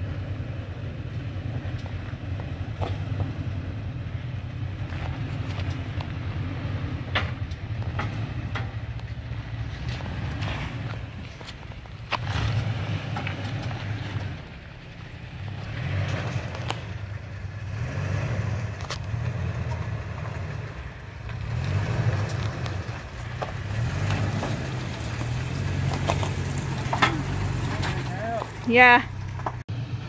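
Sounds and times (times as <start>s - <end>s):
truck engine at low revs: 0.0s - 30.0s
sharp clicks and knocks: 7.1s - 9.2s, 22.2s - 29.6s
tyres crunching over rock: 9.0s - 14.4s, 18.7s - 29.6s.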